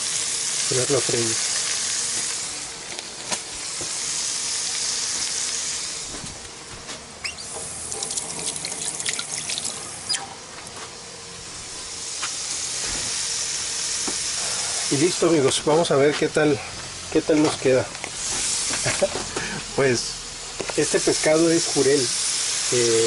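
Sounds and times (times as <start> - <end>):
fish sizzling in a frying pan: 0.0 - 2.7, 3.7 - 6.0, 11.9 - 15.1.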